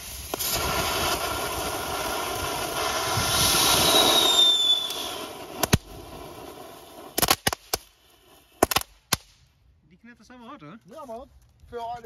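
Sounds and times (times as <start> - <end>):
firework fountain hissing: 0.0 - 9.4
sharp crack: 8.6 - 9.4.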